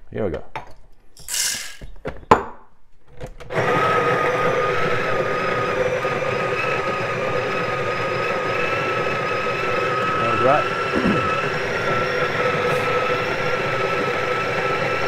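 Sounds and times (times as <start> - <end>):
coffee grinder humming: 3.4 - 15.0.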